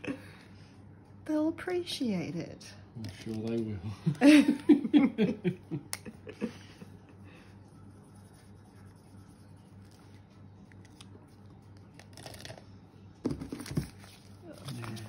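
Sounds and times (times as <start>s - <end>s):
low steady hum: 0.0s - 15.0s
marker scratching on paper: 7.6s - 10.3s.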